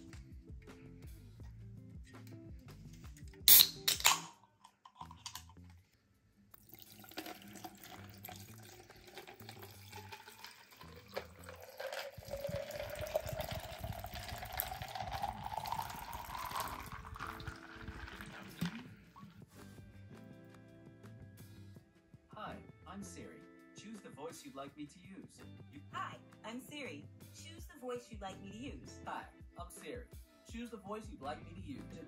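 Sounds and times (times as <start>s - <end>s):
iced tea pouring into plastic cup: 4.9s - 5.5s, 6.5s - 19.2s.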